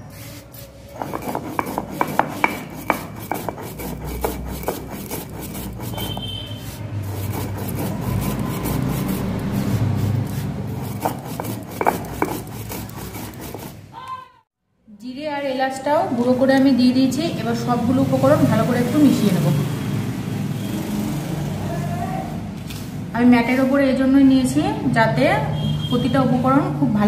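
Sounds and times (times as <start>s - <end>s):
stone roller grinding rasp: 0.1s - 13.9s
clicks of stone on stone: 10.8s - 13.7s.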